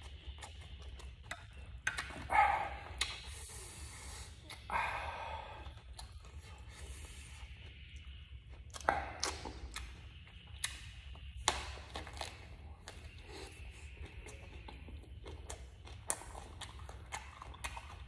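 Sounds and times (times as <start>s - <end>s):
mouth clicks: 0.0s - 5.0s, 7.9s - 18.0s
person chewing: 0.0s - 18.0s
person breathing: 3.3s - 7.5s.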